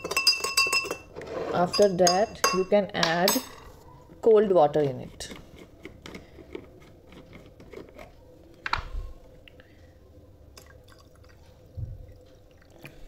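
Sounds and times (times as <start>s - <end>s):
water pouring into glass: 10.6s - 11.4s.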